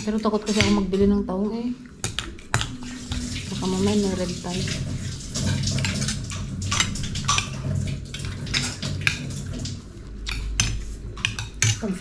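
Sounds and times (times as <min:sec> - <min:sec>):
low steady hum: 0:00.0 - 0:12.0
hard objects clattering and clinking: 0:04.8 - 0:12.0.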